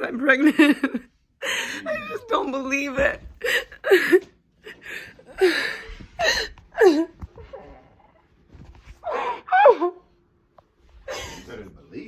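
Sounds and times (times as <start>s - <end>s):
woman sobbing: 0.4s - 7.8s, 9.0s - 10.1s, 11.1s - 11.5s.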